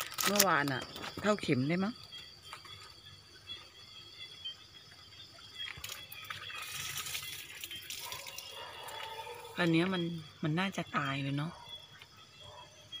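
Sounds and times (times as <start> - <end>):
plastic bags rustling: 0.0 - 1.1.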